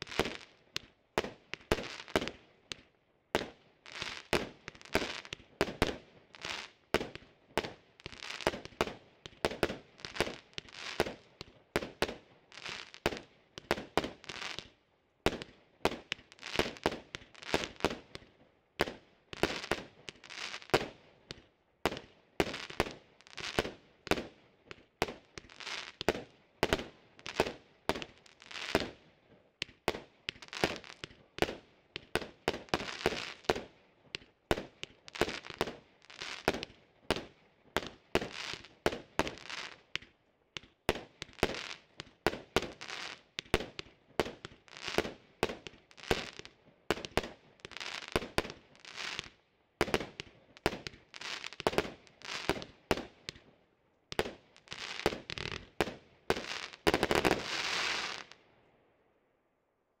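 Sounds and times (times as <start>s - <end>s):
crackling fizz of firework stars: 0.0s - 14.7s, 18.9s - 29.0s, 29.6s - 53.4s, 54.1s - 58.4s
firework shots popping: 54.1s - 58.4s.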